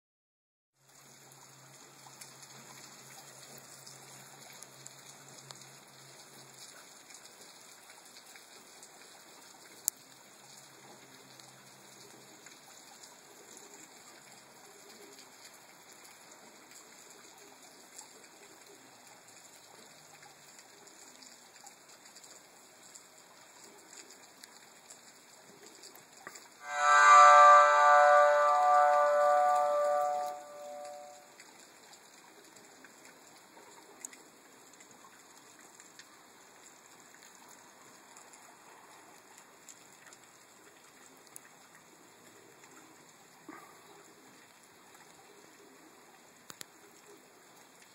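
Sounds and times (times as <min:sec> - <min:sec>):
water drips ticking: 0:00.8 - 0:27.2, 0:28.6 - 0:43.5
rain falling on a wet street: 0:00.8 - 0:47.9
loud ringing chime: 0:26.6 - 0:31.2.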